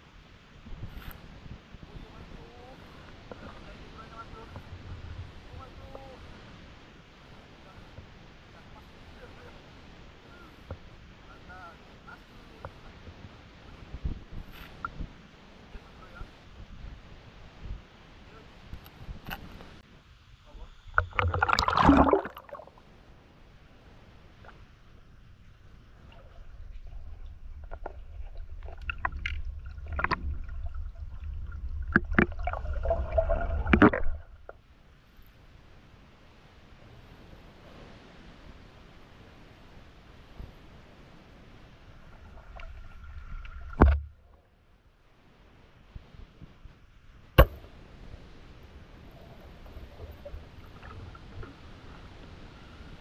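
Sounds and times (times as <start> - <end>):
underwater water rumble: 0.6 - 6.2, 20.5 - 34.8, 40.4 - 44.7, 47.4 - 53.0
water sloshing and splashing: 20.8 - 22.8, 25.9 - 34.6, 42.1 - 44.4
underwater clicks and knocks: 21.0 - 22.4, 28.6 - 30.4, 31.9 - 34.6, 43.4 - 44.4, 47.4 - 47.6
speargun firing underwater: 47.4 - 47.6.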